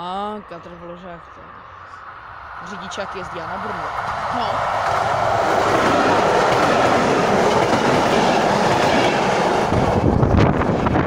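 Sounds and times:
train wheels rushing on rails: 2.2 - 11.0.

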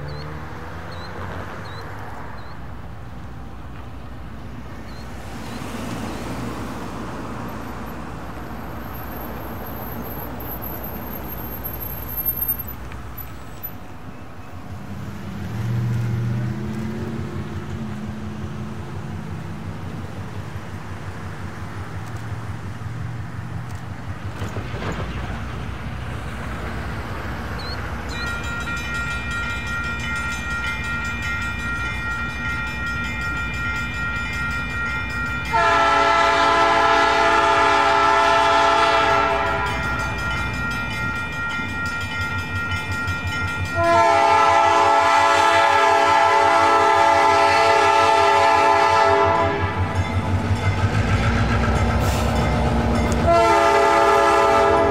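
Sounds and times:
locomotive and train rumbling: 0.0 - 54.9
locomotive air horn blasts: 35.4 - 40.1, 43.8 - 50.0, 53.1 - 54.9.

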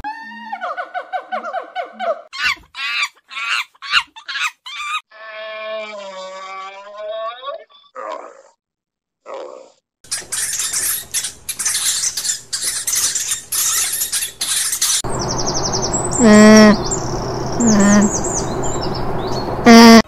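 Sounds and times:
small birds chirping: 10.1 - 20.0
alpaca humming: 16.1 - 16.9, 17.6 - 18.2, 19.6 - 20.0.

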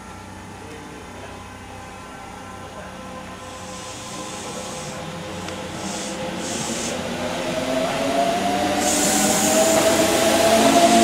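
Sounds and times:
electric train arriving: 0.0 - 11.0
train motor whine: 3.2 - 11.0.

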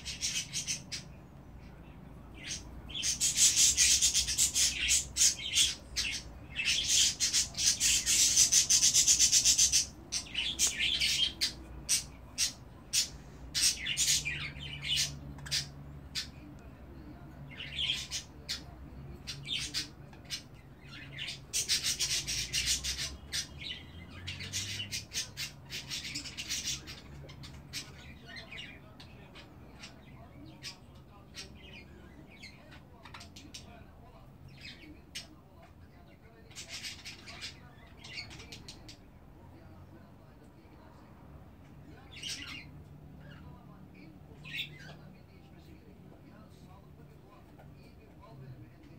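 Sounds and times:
budgerigars chattering: 0.0 - 1.1, 2.4 - 16.4, 19.3 - 30.0, 36.5 - 39.0, 42.1 - 43.4.

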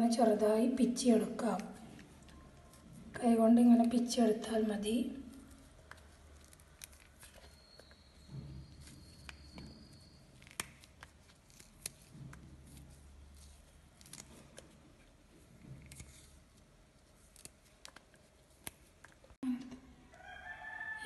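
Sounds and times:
mushrooms tearing by hand: 5.3 - 8.1, 9.2 - 14.8.

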